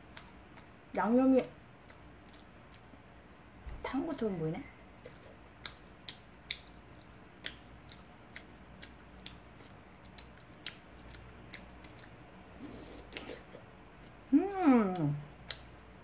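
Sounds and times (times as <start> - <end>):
chewing chewy rice cakes: 0.0 - 3.6, 4.9 - 14.3, 14.9 - 16.0
wet mouth clicks: 5.0 - 13.5, 14.9 - 15.7.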